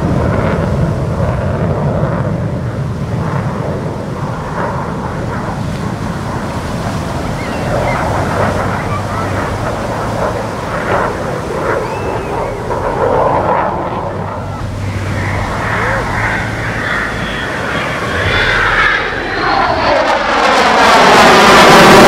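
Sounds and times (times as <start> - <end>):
steady rushing roar: 0.0 - 22.0
crowd voices: 6.3 - 21.4.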